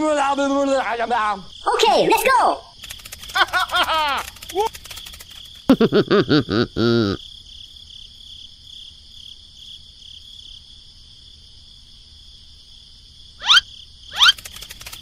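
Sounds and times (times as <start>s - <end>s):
crickets chirring: 0.0s - 15.0s
cartoon-like vocalizing: 6.2s - 7.2s, 13.4s - 14.4s
rising whistle-like chirp: 13.4s - 14.4s.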